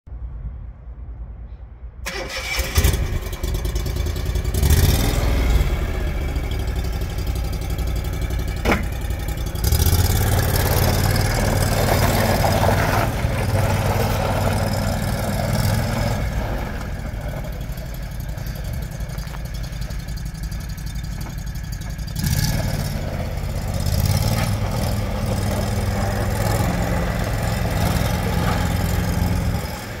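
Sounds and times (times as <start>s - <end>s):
atv engine revving: 2.1s - 30.0s.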